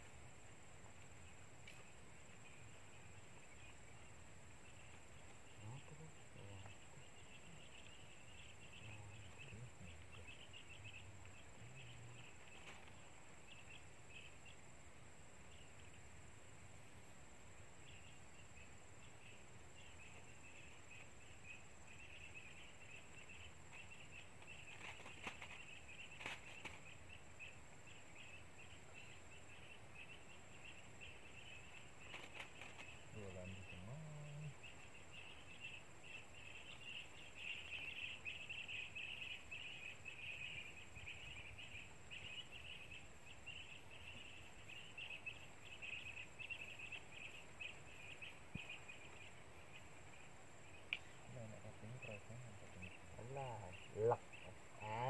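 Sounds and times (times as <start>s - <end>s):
insects trilling: 0.0s - 55.0s
faint clicks: 1.0s - 1.9s, 50.9s - 51.2s.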